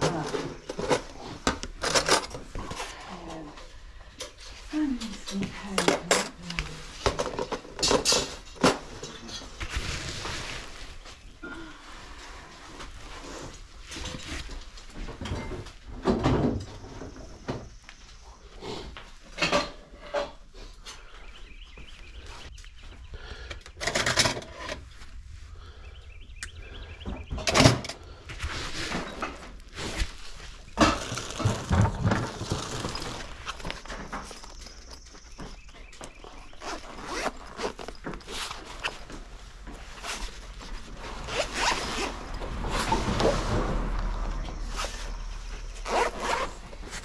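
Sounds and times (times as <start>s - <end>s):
household items knocking and clattering: 5.0s - 9.9s, 30.7s - 36.2s.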